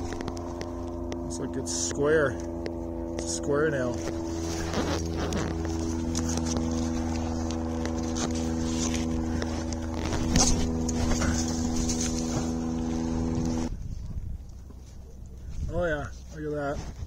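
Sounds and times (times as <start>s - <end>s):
motorboat engine droning: 0.0s - 17.0s.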